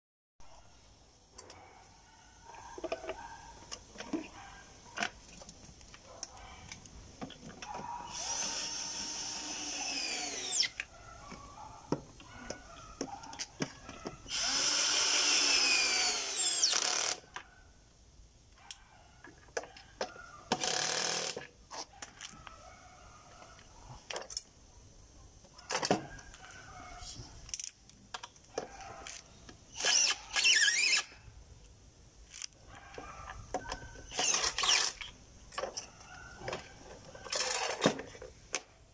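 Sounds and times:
cordless drill driving screws: 8.1s - 10.8s, 14.3s - 17.2s, 20.5s - 21.4s, 29.7s - 31.1s, 34.1s - 35.1s.

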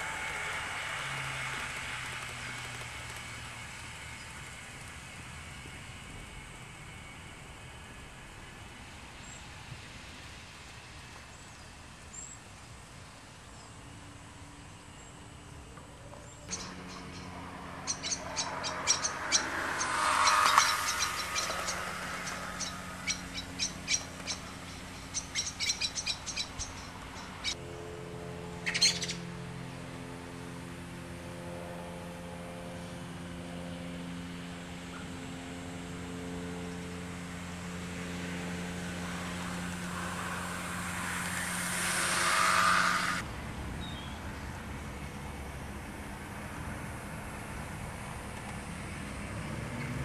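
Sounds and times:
model locomotive humming: 0.0s - 49.3s
birds chirping: 14.8s - 27.6s, 28.6s - 29.3s.

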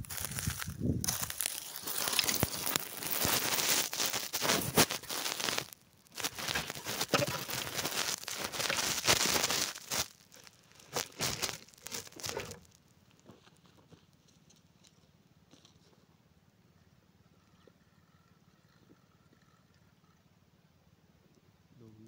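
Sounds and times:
crinkling handling noise on microphone: 0.0s - 16.1s.

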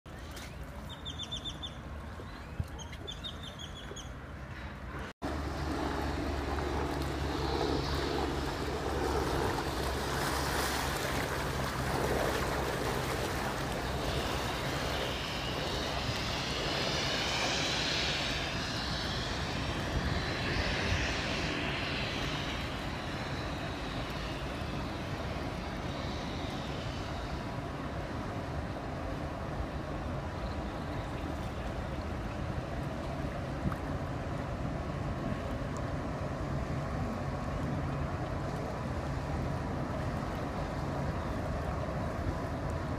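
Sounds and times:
ship engine droning: 4.3s - 33.3s
water rushing along hull: 4.3s - 42.9s.

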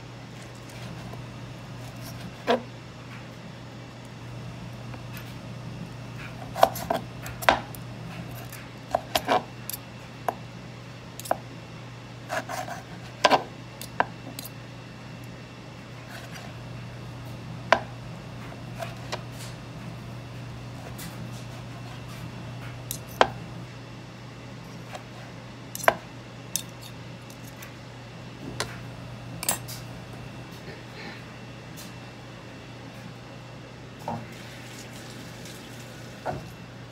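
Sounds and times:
steady low hum: 0.0s - 36.9s.

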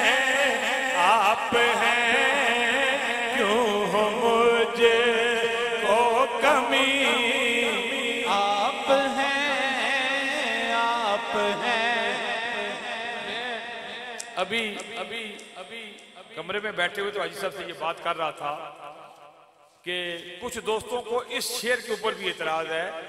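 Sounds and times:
man singing through a microphone: 0.0s - 16.0s.

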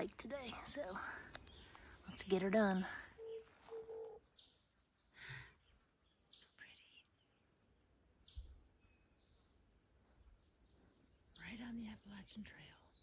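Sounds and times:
faint high bird chirps: 1.4s - 13.0s.

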